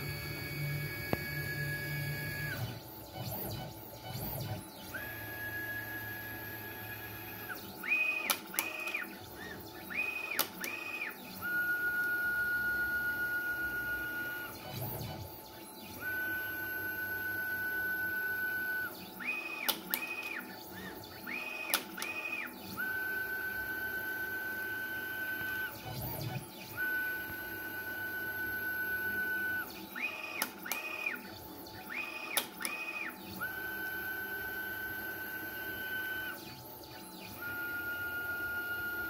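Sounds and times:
sharp clicks of plotter: 8.0 - 9.1, 10.3 - 11.0, 19.3 - 20.4, 21.6 - 22.4, 30.3 - 31.2, 32.0 - 33.1.

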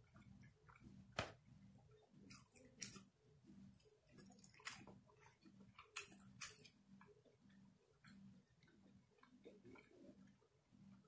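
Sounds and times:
person chewing: 2.3 - 3.1, 3.7 - 6.8.

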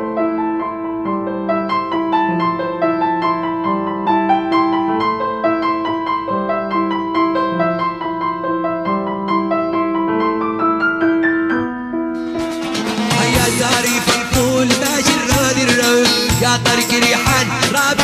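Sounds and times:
instrumental background music: 8.7 - 18.0.

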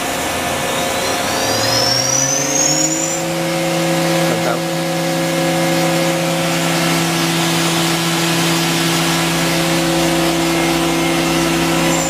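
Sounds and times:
machining center humming: 0.0 - 12.0.

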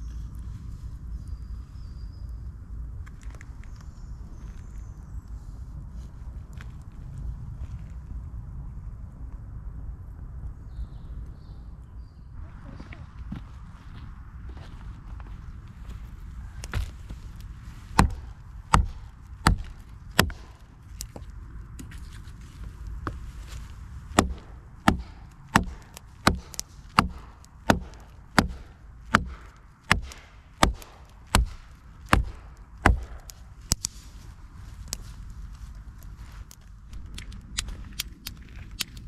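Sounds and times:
hatchet chopping branch: 17.9 - 21.2, 24.1 - 34.0.

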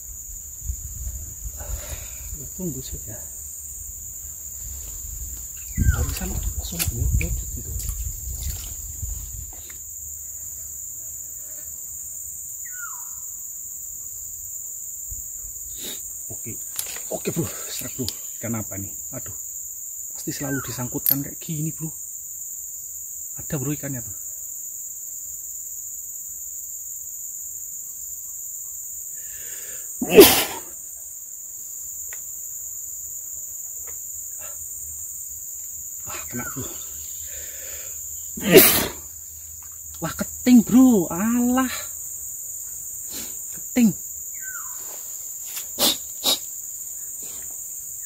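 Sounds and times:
insects droning: 0.0 - 48.0
person breathing in: 1.5 - 2.4, 29.2 - 29.9, 37.2 - 38.0
person sneezing: 30.0 - 30.8, 38.4 - 39.1, 45.8 - 46.4.

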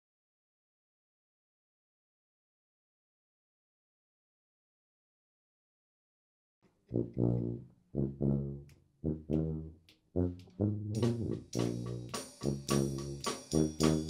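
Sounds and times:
low brass riff: 6.9 - 14.0
drums and cymbals: 11.0 - 14.0.

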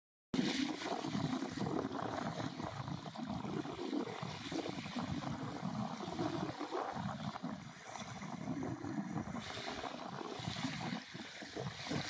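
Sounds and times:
surf rushing: 0.4 - 12.0.

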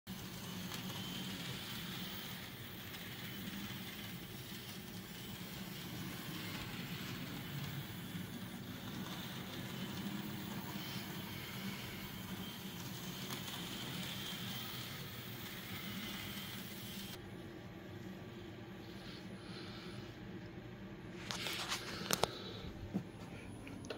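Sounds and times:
model train motor whirring: 0.1 - 17.2.

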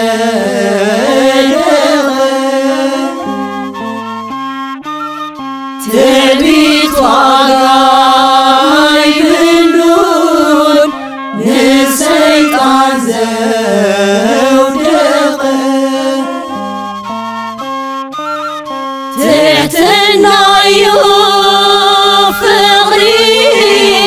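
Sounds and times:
hymn chanted: 0.0 - 3.9, 5.8 - 16.6, 19.2 - 24.0
melodic instrumental accompaniment: 0.6 - 24.0.

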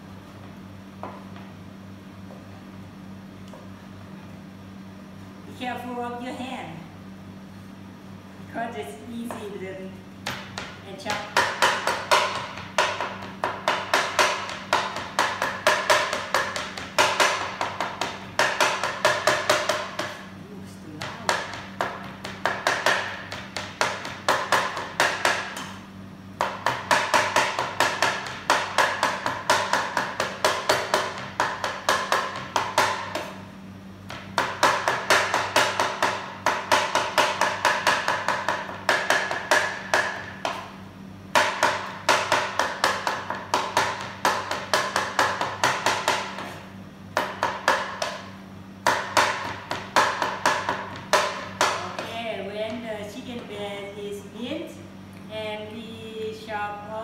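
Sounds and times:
knife chopping on wooden board: 10.2 - 20.2, 21.0 - 25.8, 26.4 - 33.4, 34.1 - 52.2.

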